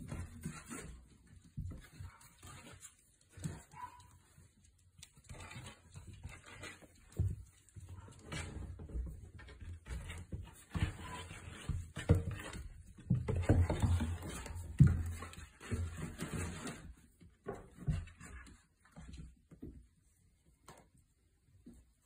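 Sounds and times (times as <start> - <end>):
puppies scuffling on blanket: 0.0 - 22.0.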